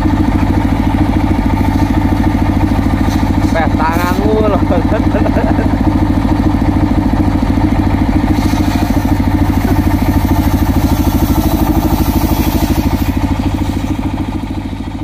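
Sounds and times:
engine pulsing steadily: 0:00.0 - 0:15.0
circular saw cutting wood: 0:01.5 - 0:05.8, 0:08.1 - 0:14.4.

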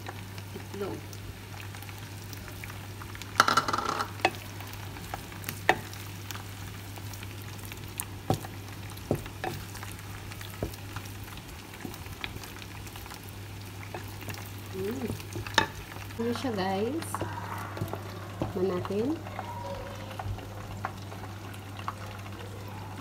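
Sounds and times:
eggs sizzling in a pan: 0:00.0 - 0:23.0
spatula knocking against pan: 0:08.3 - 0:09.6.

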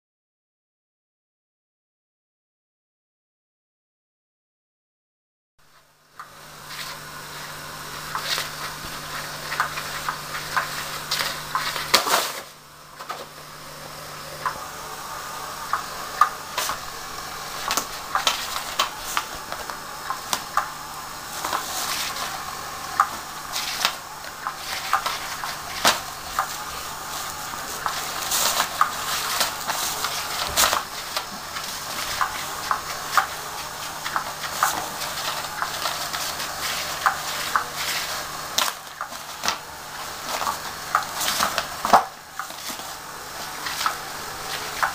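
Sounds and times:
low motor hum: 0:05.6 - 0:44.9
rustling scrape under cover: 0:06.6 - 0:13.4, 0:16.4 - 0:44.9.

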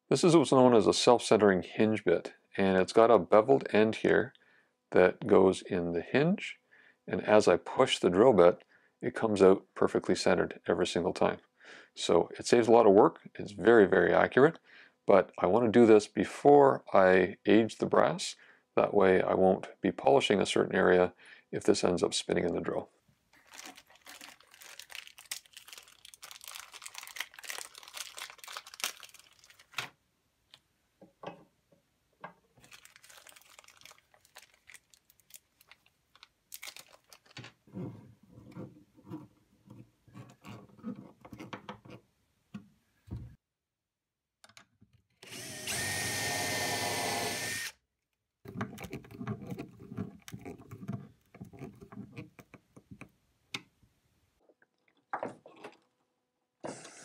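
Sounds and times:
packaging rustling and clicking: 0:23.4 - 0:30.6, 0:32.6 - 0:37.6, 0:48.5 - 0:53.1
screwdriver creaking and scraping: 0:37.2 - 0:42.1, 0:48.5 - 0:53.1
power drill whining: 0:45.2 - 0:47.8.

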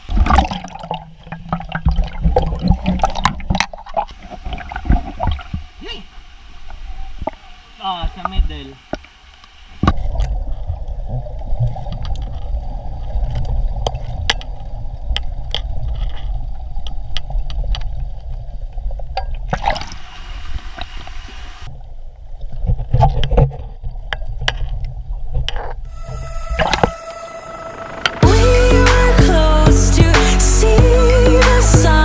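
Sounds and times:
water splash: 0:00.0 - 0:05.8, 0:19.4 - 0:21.4
underwater rumble of churning water: 0:00.0 - 0:08.5, 0:09.7 - 0:28.2.

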